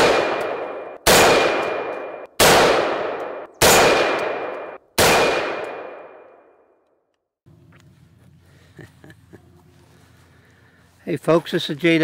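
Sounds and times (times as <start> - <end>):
rifle shots echoing: 0.0 - 6.6.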